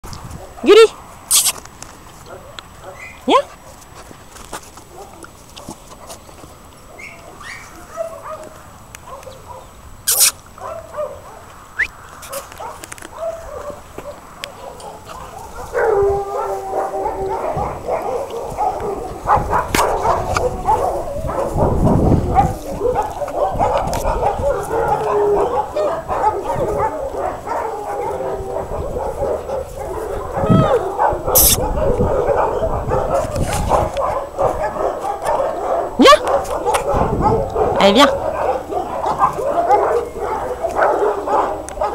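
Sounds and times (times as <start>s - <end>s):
dog whining and yelping: 6.9s - 8.1s, 22.3s - 41.2s.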